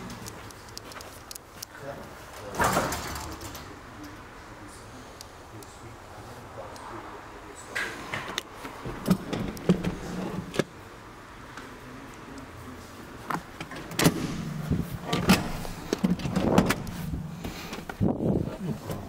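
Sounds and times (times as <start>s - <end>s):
low hum: 14.0s - 19.0s.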